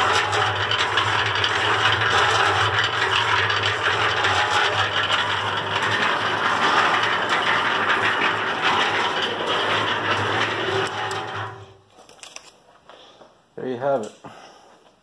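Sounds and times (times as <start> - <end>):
mixer drum rattling: 0.0 - 12.0.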